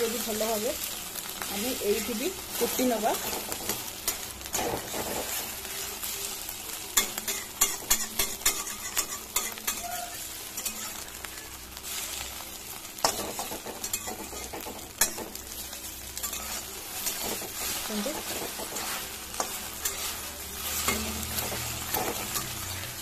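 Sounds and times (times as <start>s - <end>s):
egg sizzling in hot oil: 0.0s - 23.0s
steel spatula scraping and tapping: 7.0s - 10.0s, 10.6s - 11.0s, 13.0s - 15.4s, 16.2s - 22.6s.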